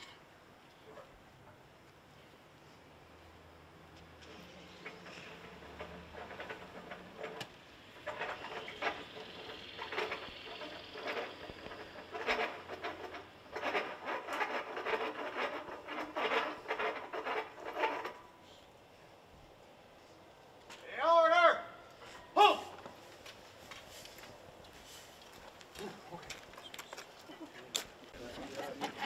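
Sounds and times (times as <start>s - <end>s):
rope rasping through pulley: 4.3s - 18.6s.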